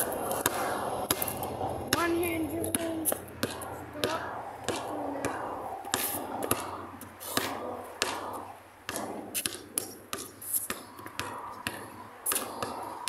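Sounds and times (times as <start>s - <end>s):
basketball bouncing on pavement: 0.0s - 13.0s.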